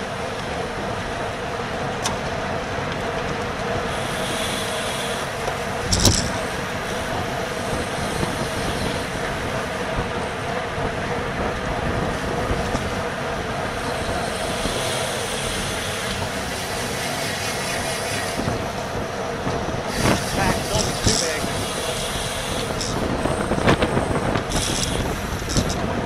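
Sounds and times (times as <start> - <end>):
bicycle tyre noise: 0.0 - 26.0
wind on microphone: 5.7 - 26.0.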